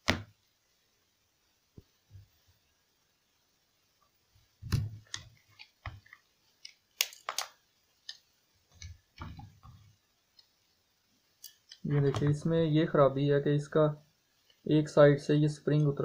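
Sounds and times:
plastic clicks and snaps: 4.7 - 9.4.

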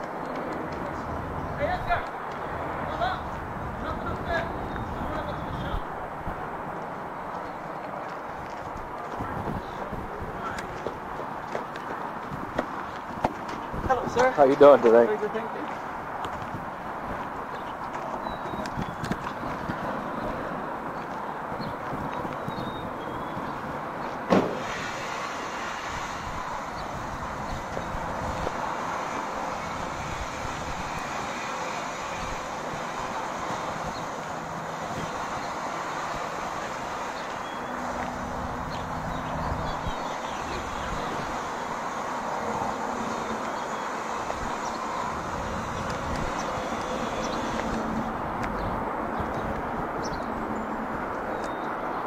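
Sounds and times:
outdoor noise: 0.0 - 52.0
sharp knock: 24.3 - 24.7.

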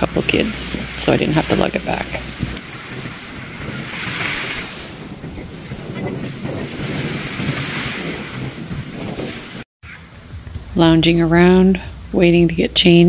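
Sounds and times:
wind buffeting microphone: 0.0 - 13.0
small waves breaking on sand: 0.2 - 9.6.

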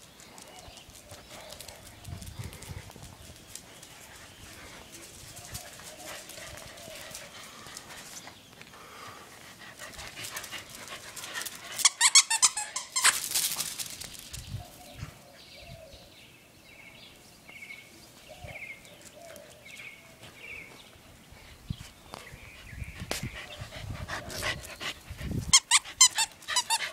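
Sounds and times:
puppies scuffling: 9.8 - 14.4
puppies high-pitched burst: 11.4 - 13.8, 25.5 - 26.9
puppies chirping: 25.5 - 26.9.

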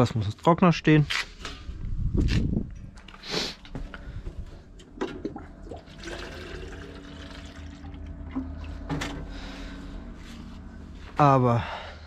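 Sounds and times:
water pouring into plastic can: 5.2 - 8.1.

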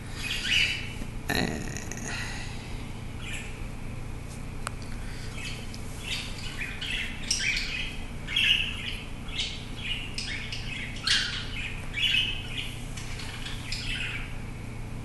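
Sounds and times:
cockatiel chirping: 5.3 - 14.4.

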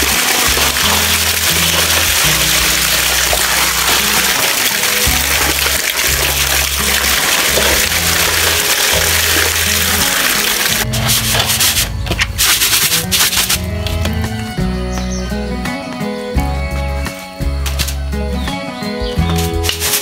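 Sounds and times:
background music with bass line: 0.0 - 20.0
steady rushing hiss: 6.7 - 13.7.

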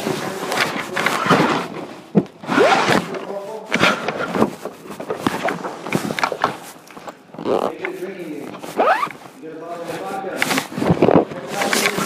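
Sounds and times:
rustling of things handled: 0.0 - 12.0.

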